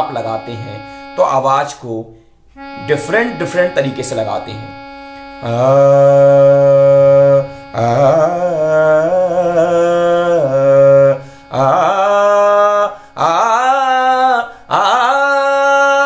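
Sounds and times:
steady drone: 2.6s - 14.9s
man singing long held notes: 2.6s - 16.0s.

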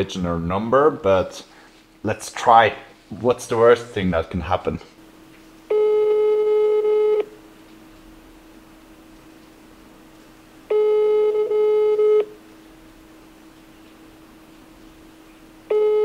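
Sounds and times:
faint steady hum: 0.0s - 16.0s
phone ringback tone: 5.7s - 7.4s, 10.7s - 12.4s, 15.7s - 16.0s.

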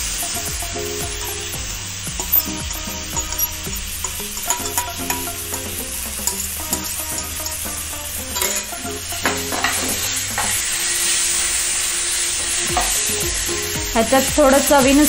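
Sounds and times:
eggplant sizzling in hot oil: 0.0s - 15.0s
steel spatula scraping a pan: 2.2s - 13.8s.

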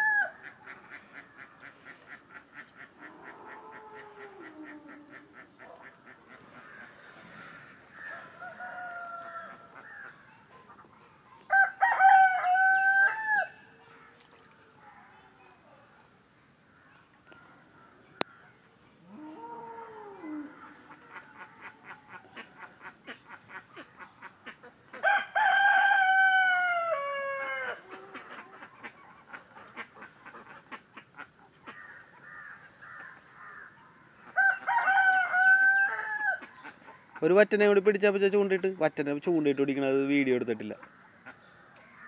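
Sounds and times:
rooster crowing: 8.0s - 9.7s, 11.5s - 13.6s, 25.0s - 27.8s, 34.4s - 36.4s.

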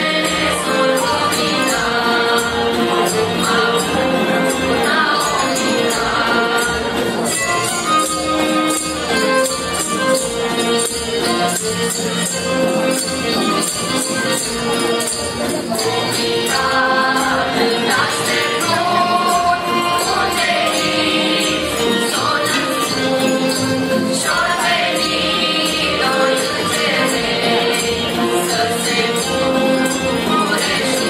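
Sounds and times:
mixed choir singing: 0.0s - 7.3s, 15.7s - 31.0s
jingling beat: 0.0s - 31.0s.

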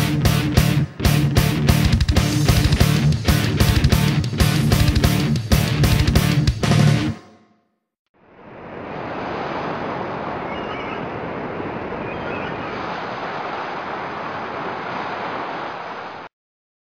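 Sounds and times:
ocean surf rushing: 8.3s - 16.3s.

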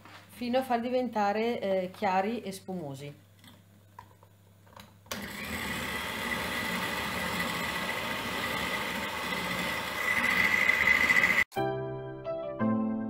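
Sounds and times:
electric hand mixer whining: 5.1s - 11.5s
piano music: 11.5s - 13.0s.

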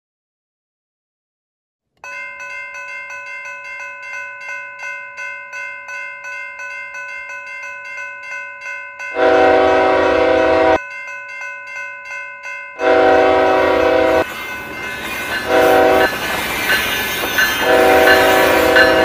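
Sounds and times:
railroad crossing bell ringing: 2.0s - 19.0s
loud train horn blast: 9.2s - 10.8s, 12.8s - 14.3s, 15.4s - 16.1s, 17.5s - 19.0s.

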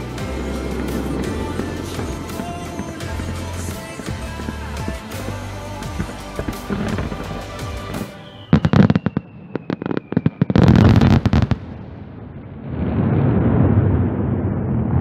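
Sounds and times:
music: 0.0s - 11.6s
fireworks bangs: 0.0s - 15.0s
falling firework whistle: 6.5s - 11.7s.

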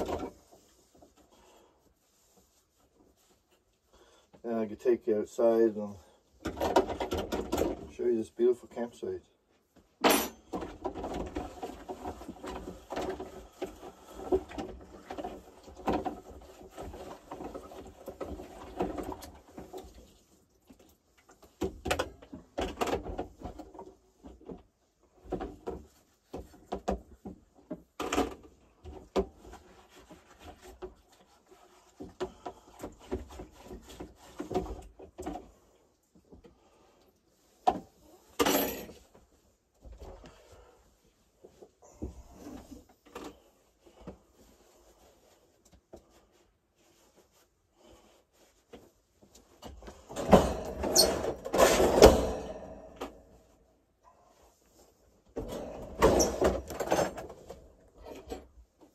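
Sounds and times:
knocking and clattering: 6.4s - 7.9s
cupboard doors: 49.7s - 53.3s.

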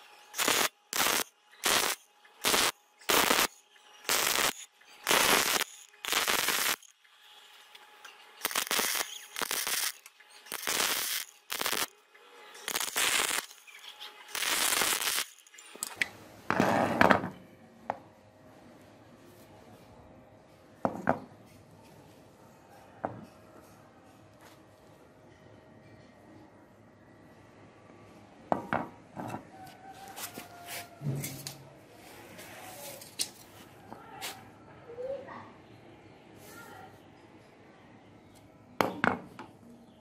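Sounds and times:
arc welding crackling: 0.0s - 16.0s.

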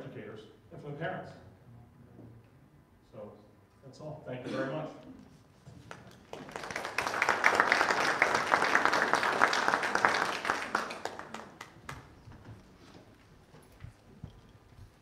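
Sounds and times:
people applauding: 5.9s - 12.5s.

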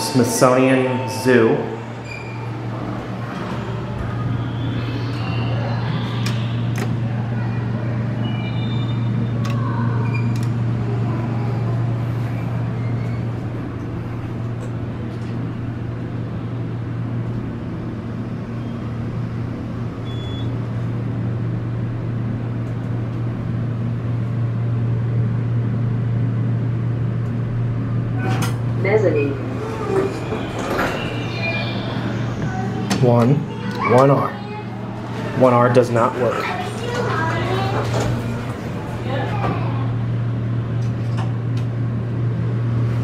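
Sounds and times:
short high tones: 0.0s - 2.8s, 29.3s - 32.9s
elevator pump motor humming: 0.0s - 43.0s.

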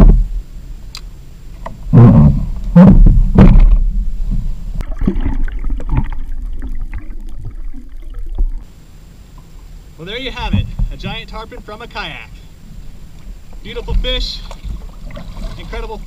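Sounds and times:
muffled underwater water noise: 0.0s - 16.0s
water splashing: 1.8s - 8.7s, 10.4s - 16.0s
knocks against a kayak hull: 2.1s - 3.8s.

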